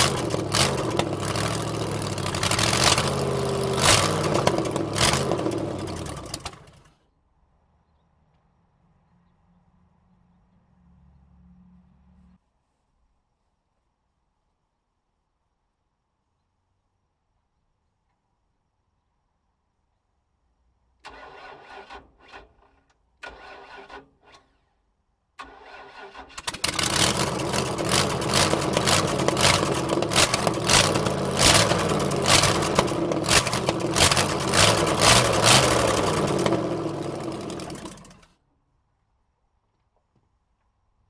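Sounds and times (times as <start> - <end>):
loud engine with exhaust cracks: 0.0 - 6.9, 25.4 - 38.3
starter motor cranking: 0.0 - 6.9, 25.4 - 38.2.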